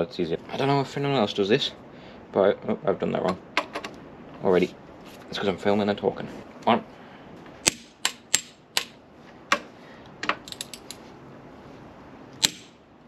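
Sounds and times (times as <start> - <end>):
torque wrench metallic clicks: 10.4 - 11.0.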